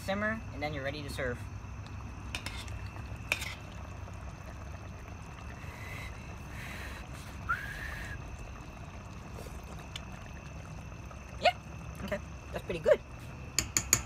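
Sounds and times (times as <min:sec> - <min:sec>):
metal ladle clinking on pot: 0:13.6 - 0:14.0.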